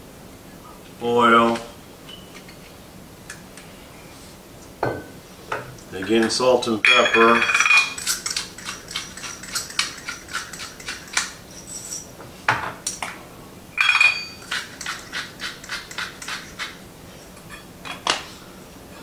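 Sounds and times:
ringing clinks of kitchenware: 0:02.1 - 0:02.4, 0:06.8 - 0:09.8, 0:13.8 - 0:14.6.

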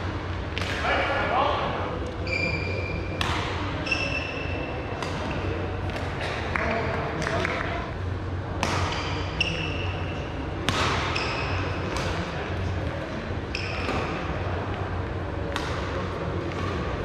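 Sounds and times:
shoes squeaking on court: 0:02.2 - 0:03.2, 0:03.8 - 0:05.6, 0:13.5 - 0:14.2
racket hitting shuttlecock: 0:03.2 - 0:03.6, 0:05.0 - 0:06.4, 0:08.6 - 0:09.2, 0:10.6 - 0:12.2.

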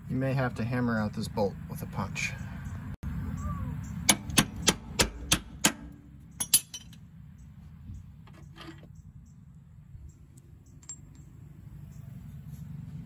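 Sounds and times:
hammer striking steel punch: 0:04.1 - 0:06.8
faint metallic clinks: 0:10.6 - 0:12.1.

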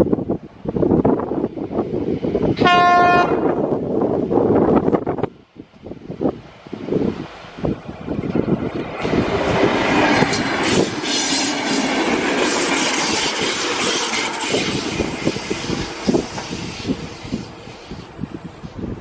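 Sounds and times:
train wheels rumbling and clacking: 0:03.4 - 0:19.0.

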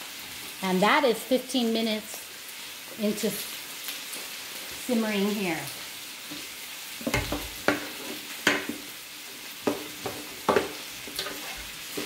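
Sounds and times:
food sizzling in a pan: 0:00.0 - 0:12.0
spatulas scraping a pan: 0:06.3 - 0:12.0.

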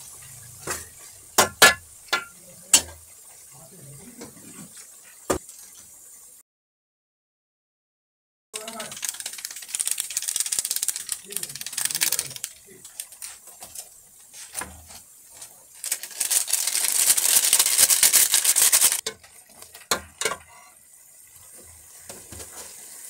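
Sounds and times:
dense crackling: 0:08.6 - 0:13.6, 0:15.6 - 0:19.0
utensils clattering on dishes: 0:17.2 - 0:20.8.

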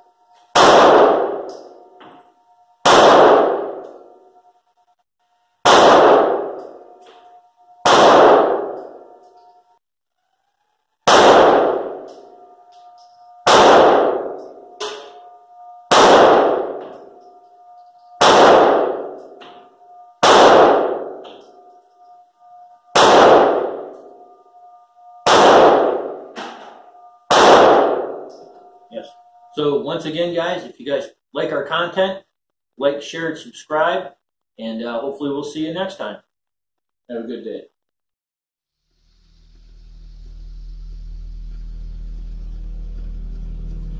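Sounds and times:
faint steady ringing tone: 0:00.0 - 0:05.6, 0:06.2 - 0:32.1
pistol shots echoing: 0:00.6 - 0:01.8, 0:02.8 - 0:04.0, 0:05.6 - 0:07.0, 0:07.8 - 0:09.2, 0:11.0 - 0:17.2, 0:18.1 - 0:22.1, 0:22.9 - 0:24.4, 0:25.2 - 0:28.8.

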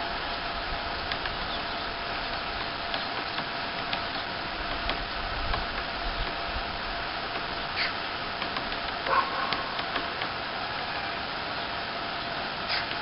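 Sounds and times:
steady hiss: 0:00.0 - 0:13.0
woodpecker tapping on wood: 0:01.1 - 0:01.8, 0:02.5 - 0:06.4, 0:07.2 - 0:10.4, 0:12.7 - 0:13.0.

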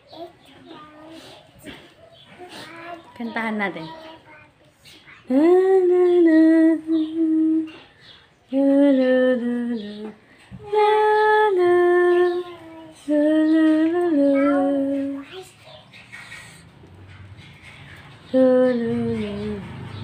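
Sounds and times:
woman singing a lullaby: 0:05.2 - 0:15.4, 0:18.2 - 0:20.0.

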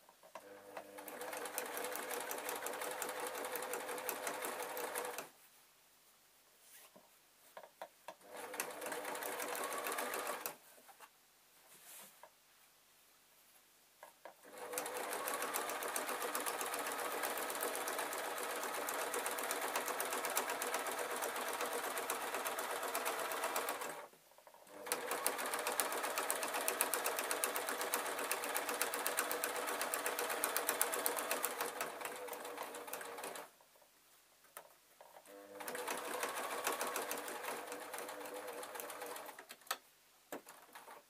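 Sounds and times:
sewing machine stitching: 0:00.4 - 0:05.3, 0:08.2 - 0:10.6, 0:14.4 - 0:33.5, 0:35.2 - 0:39.5.

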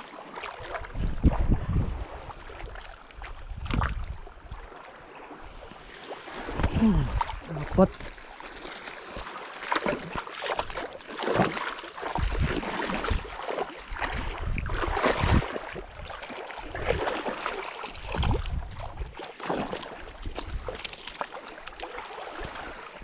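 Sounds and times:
fish splashing in water: 0:08.1 - 0:23.0.

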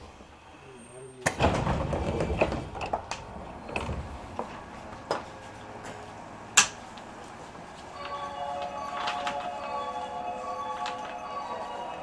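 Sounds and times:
chiming tune: 0:08.0 - 0:12.0.

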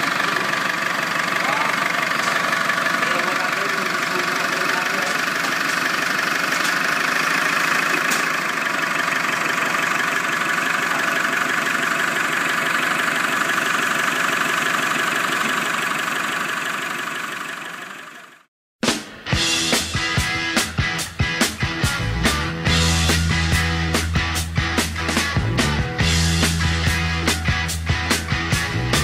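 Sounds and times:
diesel engine idling with clatter: 0:00.0 - 0:18.5.

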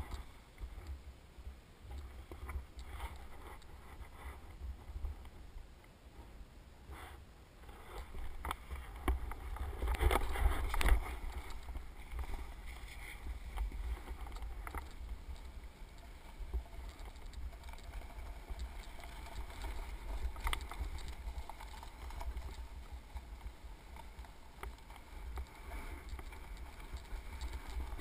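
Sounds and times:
skis sliding over snow: 0:06.9 - 0:28.0
wind rumble on microphone: 0:07.6 - 0:28.0.

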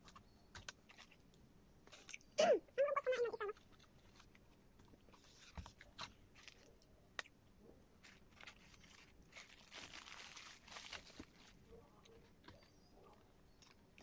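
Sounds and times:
foil wrapper crinkling: 0:08.0 - 0:12.8.

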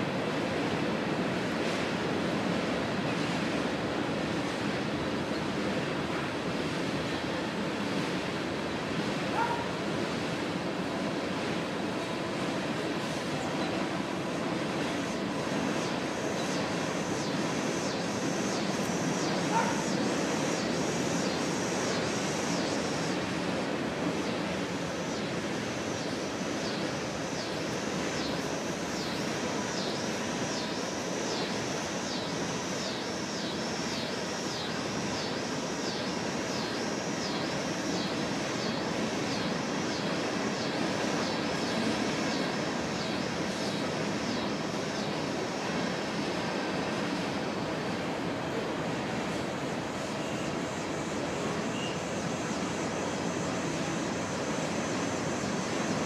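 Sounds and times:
faint high chirp: 0:51.7 - 0:52.0.

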